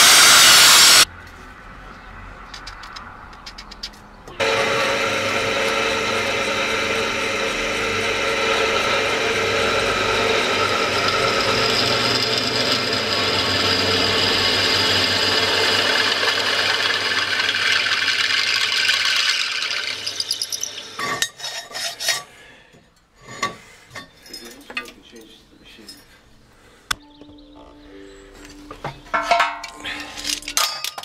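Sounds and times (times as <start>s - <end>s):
pillar drill boring metal: 0.0s - 1.0s, 4.4s - 22.2s.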